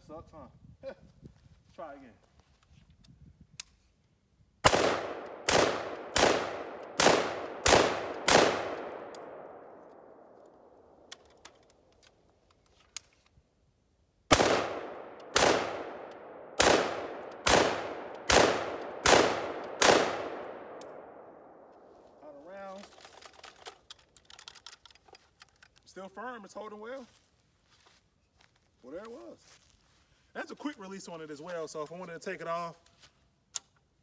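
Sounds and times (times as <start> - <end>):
rifle shots with echo: 4.6 - 11.1, 14.3 - 21.8.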